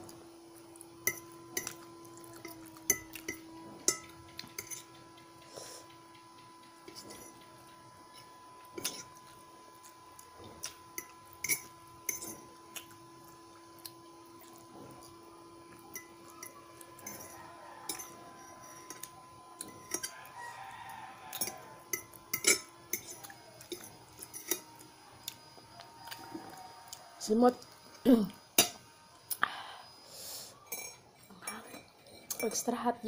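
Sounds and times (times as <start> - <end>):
faint steady hum: 0.0 - 33.0
metal fork scraping a plate: 2.9 - 5.0, 6.8 - 7.4, 11.0 - 12.5, 16.0 - 20.2, 21.3 - 24.7.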